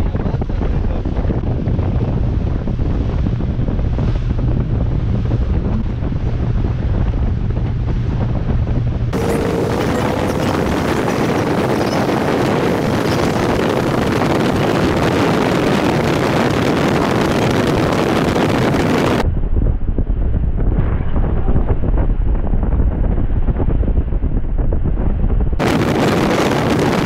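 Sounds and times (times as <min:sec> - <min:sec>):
rush of air and water: 0:00.0 - 0:19.2, 0:25.1 - 0:27.0
wind buffeting microphone: 0:00.0 - 0:27.0.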